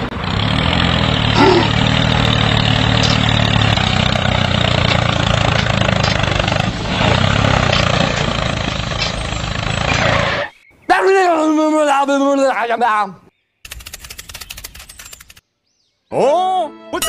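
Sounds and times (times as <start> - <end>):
tractor engine running: 0.0 - 10.5, 13.7 - 15.4.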